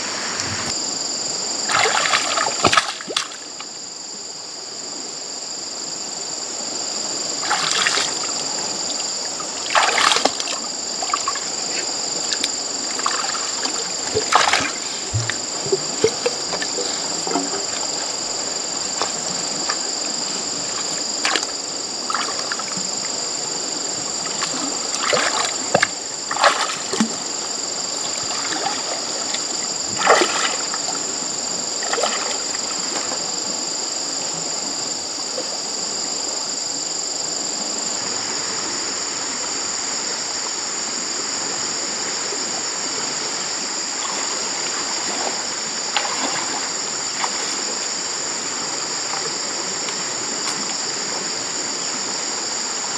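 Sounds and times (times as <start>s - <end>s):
water splashing from wading: 1.6s - 3.6s, 7.4s - 23.2s, 23.9s - 33.2s, 43.1s - 51.4s.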